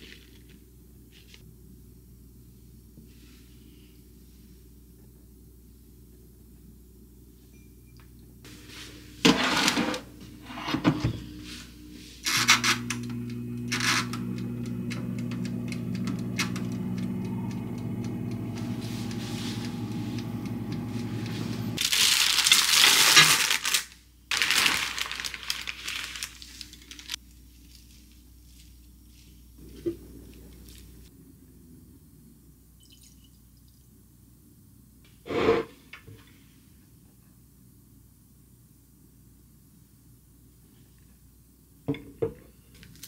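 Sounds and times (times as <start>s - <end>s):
electric oven humming: 0.6s - 21.8s, 25.8s - 32.8s.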